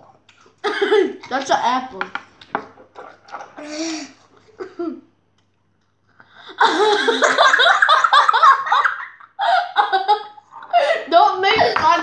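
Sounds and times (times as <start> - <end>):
children laughing loudly: 6.6 - 11.2.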